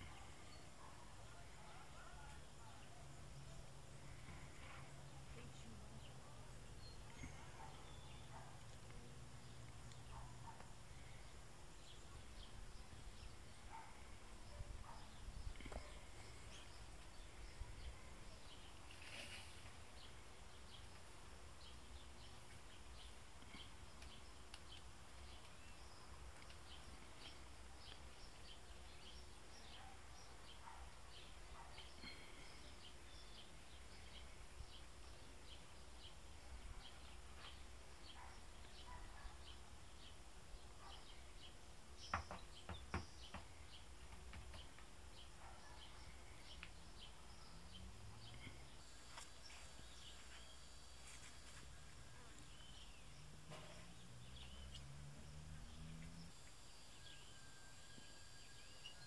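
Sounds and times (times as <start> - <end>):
distant birds chirping: 0.0 - 59.0.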